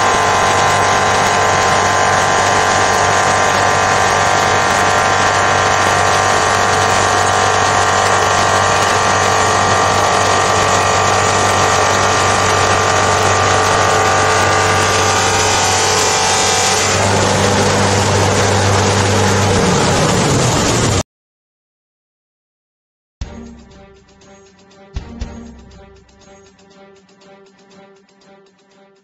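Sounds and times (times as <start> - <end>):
polishing machine hum: 0.0 - 20.2
high motor whine: 0.0 - 21.0.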